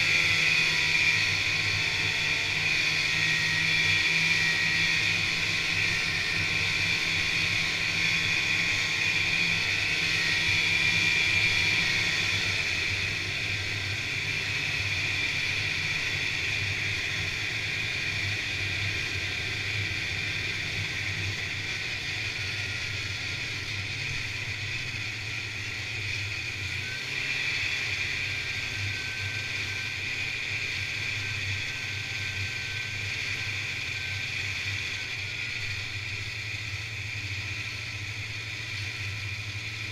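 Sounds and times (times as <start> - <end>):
snowmobile engine running: 0.0 - 39.9.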